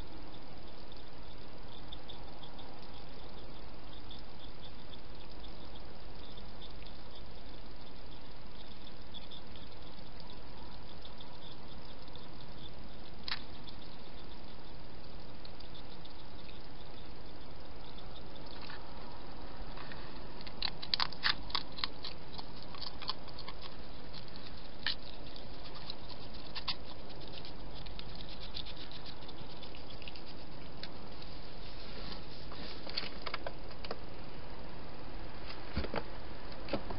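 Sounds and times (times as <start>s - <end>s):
hedgehog eating clicks and crackles: 0.0s - 31.5s, 32.8s - 34.0s
microphone hiss: 0.0s - 36.9s.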